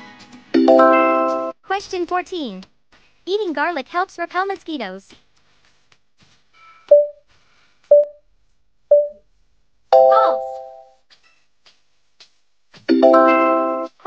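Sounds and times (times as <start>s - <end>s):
short countdown beeps: 6.9s - 7.2s, 7.9s - 8.2s, 8.9s - 9.2s, 10.0s - 10.8s.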